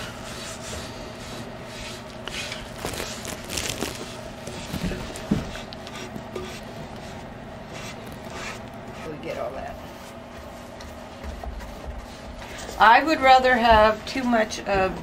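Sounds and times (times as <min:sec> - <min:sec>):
brush rubbing on wood: 0:00.0 - 0:02.7, 0:04.9 - 0:12.8.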